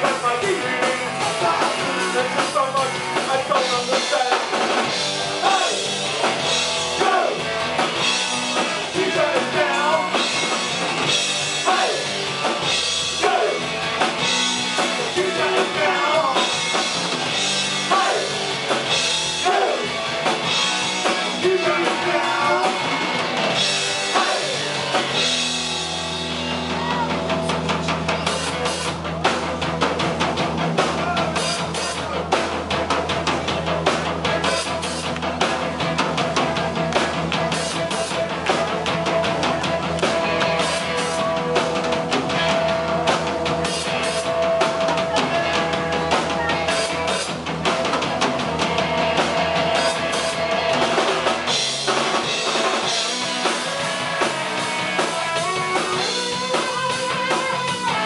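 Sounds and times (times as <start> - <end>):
lead vocals singing: 0.0 - 25.2
rock band playing: 0.0 - 58.0.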